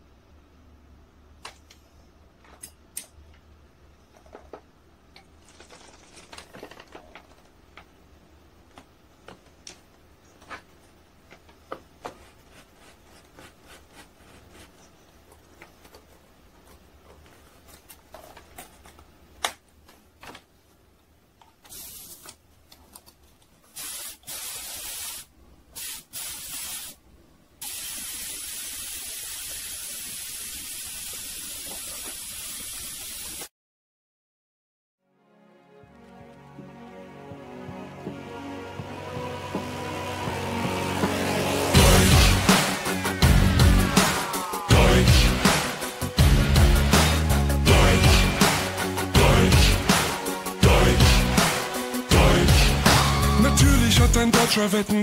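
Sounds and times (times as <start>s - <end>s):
clicks and knocks of parts handled: 1.4s - 3.5s
paint sprayer hissing: 21.6s - 22.4s, 23.7s - 27.0s, 27.6s - 33.5s.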